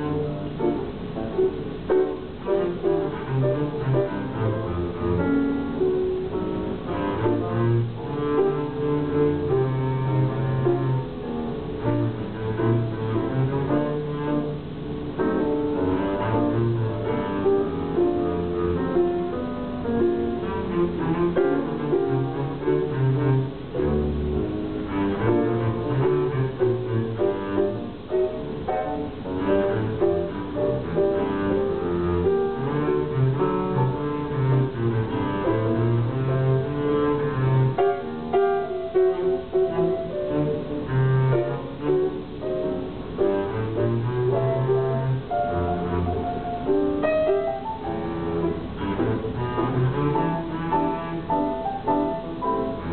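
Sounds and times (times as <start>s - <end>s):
bowed double bass: 0.0s - 52.9s
grand piano: 0.0s - 52.9s.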